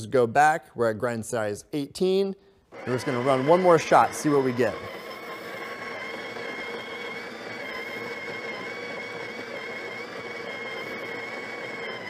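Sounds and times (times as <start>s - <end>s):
coffee grinder grinding beans: 2.7s - 12.0s.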